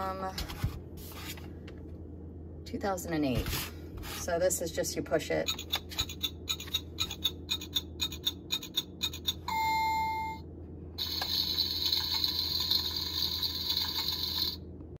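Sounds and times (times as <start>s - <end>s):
toy stove ticking: 5.5s - 9.4s.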